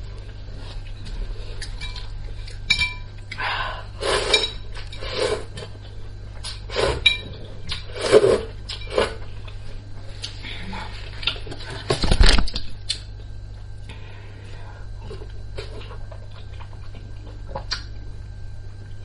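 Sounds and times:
slurping noodles: 4.0 - 5.5, 7.9 - 9.2.

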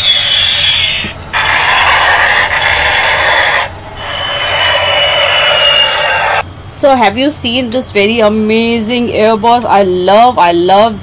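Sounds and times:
toy jet sound effect: 0.0 - 6.4.

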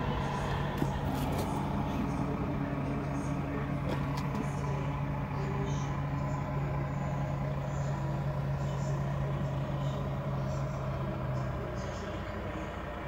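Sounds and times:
engine idling: 0.0 - 13.0.

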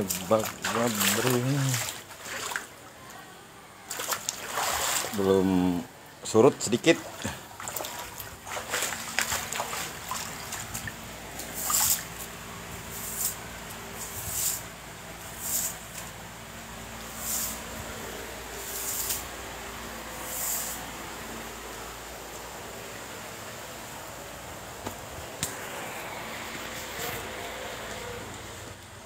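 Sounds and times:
footsteps wading through water: 0.0 - 3.0, 3.9 - 5.3, 6.8 - 12.3
faint steady hum: 0.0 - 29.0.

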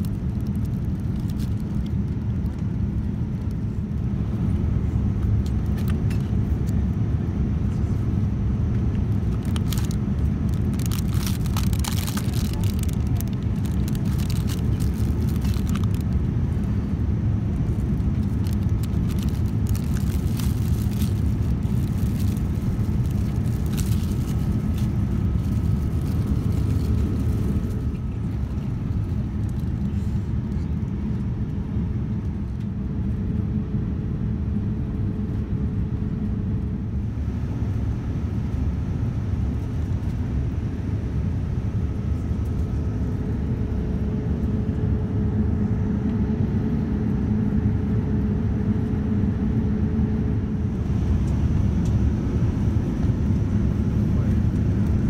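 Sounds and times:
plastic wrapper crinkling: 0.0 - 1.9, 9.3 - 16.1, 17.7 - 27.8
airplane cabin roar: 0.0 - 55.0.

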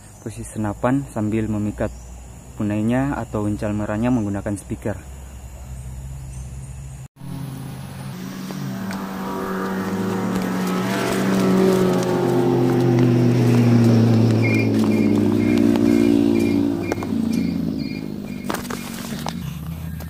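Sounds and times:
vehicle engine passing: 5.0 - 20.0.

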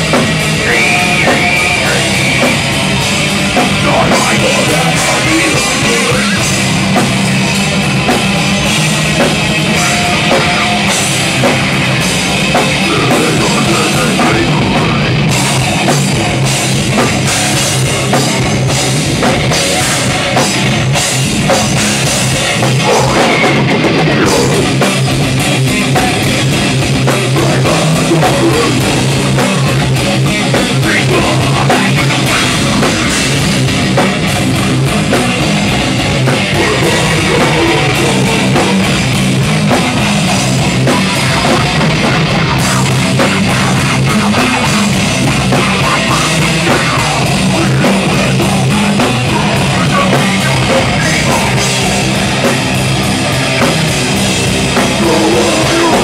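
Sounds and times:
drum kit: 0.0 - 56.0
electric guitar: 0.0 - 56.0
person singing into a microphone: 0.6 - 2.4, 3.7 - 6.5, 12.8 - 15.2, 22.7 - 24.8, 27.3 - 29.8, 30.6 - 33.4, 36.5 - 39.1, 41.1 - 51.9, 54.8 - 56.0.

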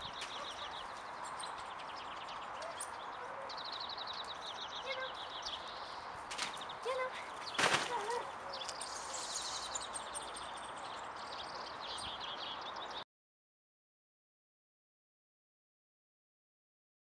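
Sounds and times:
outdoor background noise: 0.0 - 13.0
small birds chirping: 0.0 - 13.0.

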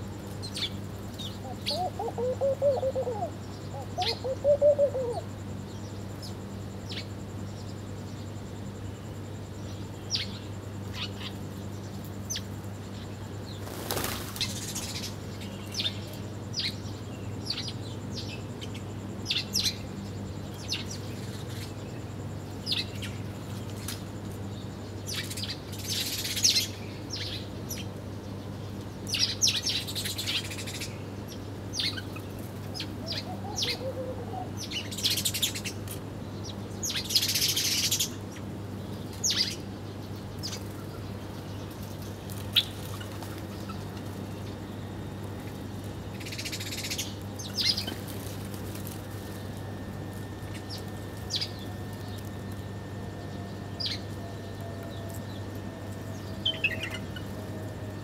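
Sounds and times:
sparrows chirping: 0.0 - 58.0
wings flapping: 13.6 - 14.9, 41.9 - 44.2, 47.5 - 52.6.

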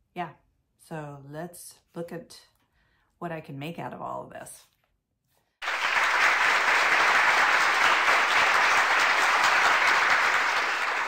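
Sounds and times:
crowd clapping: 5.6 - 11.0.

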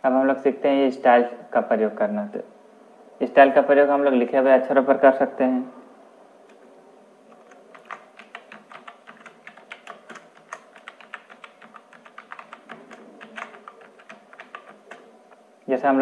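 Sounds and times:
keyboard typing clicks: 7.3 - 15.4.

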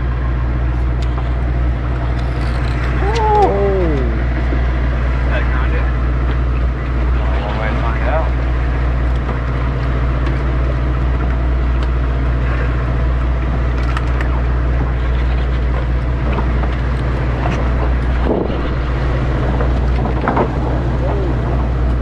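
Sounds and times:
boat engine drone: 0.0 - 22.0
water and deck noise: 0.0 - 22.0.

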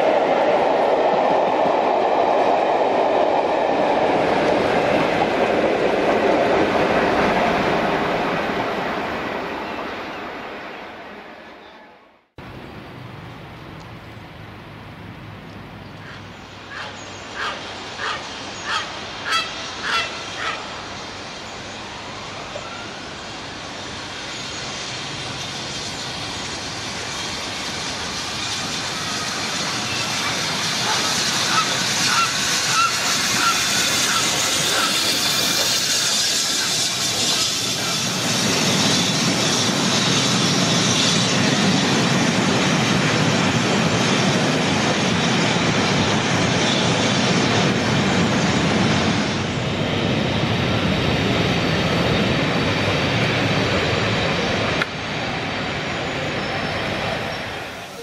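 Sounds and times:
steam train running noise: 16.0 - 58.0
goose honking: 16.1 - 20.6.

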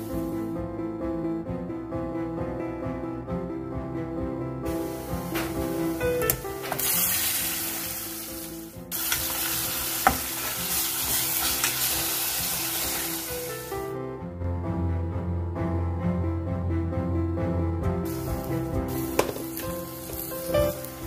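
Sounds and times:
meat sizzling in hot oil: 6.7 - 13.9, 18.1 - 21.0.

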